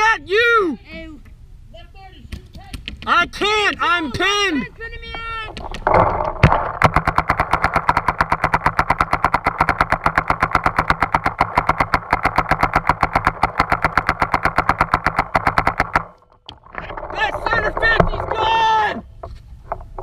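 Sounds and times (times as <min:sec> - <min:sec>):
paintball marker firing: 0:05.6 - 0:16.2.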